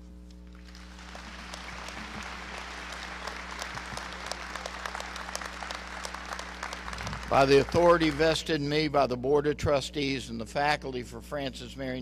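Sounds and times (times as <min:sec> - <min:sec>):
large audience applauding: 0:00.6 - 0:08.5.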